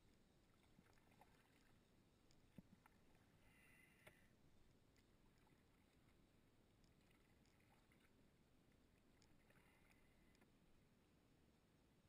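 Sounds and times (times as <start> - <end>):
light ticks: 0.0 - 3.2, 4.9 - 6.2, 6.8 - 8.1, 8.7 - 10.5
faint water lapping: 0.0 - 11.5.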